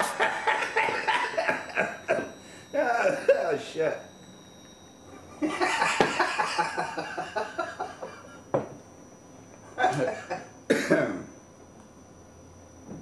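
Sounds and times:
man laughing: 0:00.0 - 0:03.6, 0:05.3 - 0:08.4, 0:09.8 - 0:10.5
short coughs: 0:09.8 - 0:11.3.

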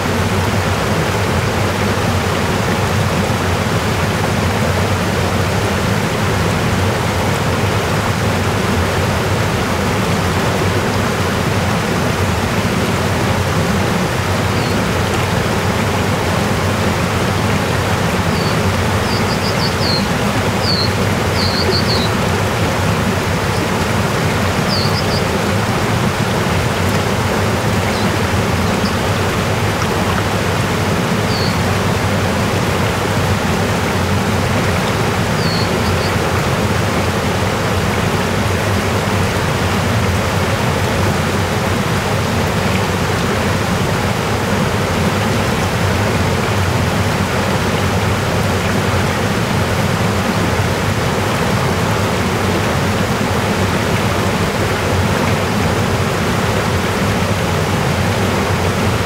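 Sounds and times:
stream rushing over rocks: 0:00.0 - 0:59.0
faint high chirp: 0:18.3 - 0:22.1, 0:24.7 - 0:25.3, 0:31.3 - 0:31.6, 0:35.4 - 0:36.1.

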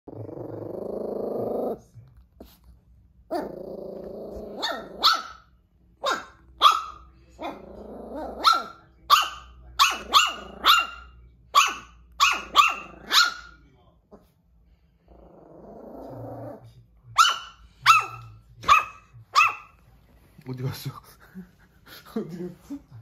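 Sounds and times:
puppy growling: 0:00.1 - 0:02.5, 0:03.2 - 0:05.4, 0:07.4 - 0:08.8, 0:09.9 - 0:11.2, 0:12.3 - 0:13.5, 0:15.0 - 0:16.9
puppy yapping: 0:04.5 - 0:13.6.

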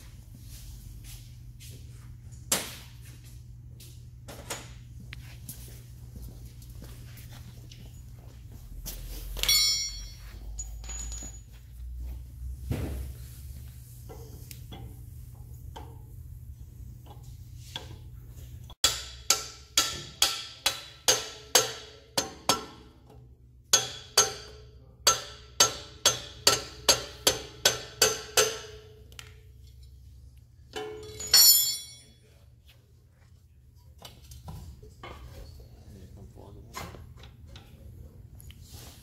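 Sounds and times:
mallet beating on steel bar: 0:18.8 - 0:22.9, 0:23.7 - 0:29.0.

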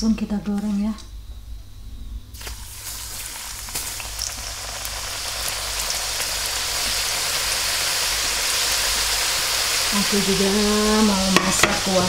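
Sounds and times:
wrappers sizzling in hot oil: 0:02.3 - 0:12.0
oil popping: 0:02.4 - 0:09.2.

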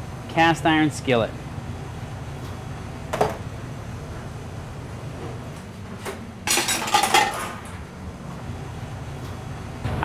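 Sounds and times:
dishes and utensils clinking: 0:06.5 - 0:07.7.

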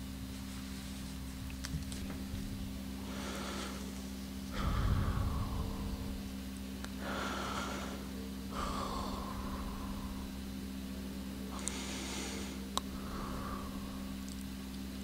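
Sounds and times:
rumble of movement: 0:00.0 - 0:15.0
steady low hum: 0:00.0 - 0:15.0
man breathing deeply: 0:02.9 - 0:14.4.

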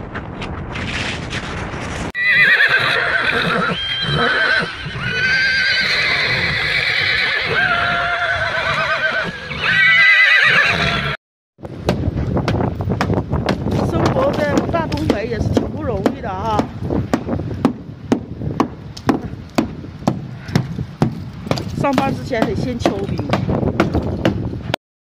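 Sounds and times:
horses whinnying: 0:02.2 - 0:11.2
wind buffeting microphone: 0:11.6 - 0:24.8.

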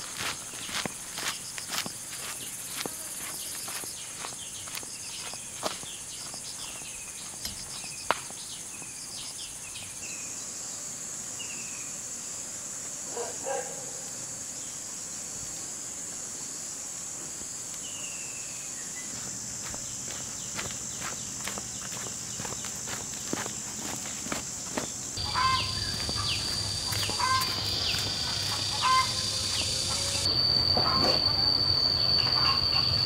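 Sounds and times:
high-pitched insect chorus: 0:00.0 - 0:33.0
falling bird chirps: 0:25.2 - 0:31.2
brief pitched call: 0:27.1 - 0:33.0.

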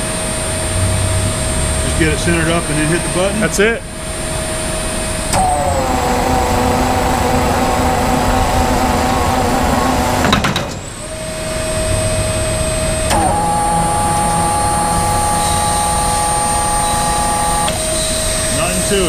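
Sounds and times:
tapping machine whine: 0:00.0 - 0:19.0
sharp machine clack: 0:05.3 - 0:11.1, 0:13.0 - 0:19.0.

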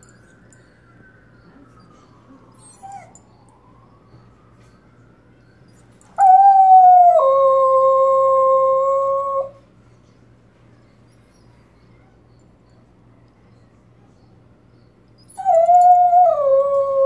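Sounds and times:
sirens: 0:00.0 - 0:09.9, 0:15.3 - 0:17.0
dog howling: 0:06.2 - 0:09.6, 0:15.3 - 0:17.0.

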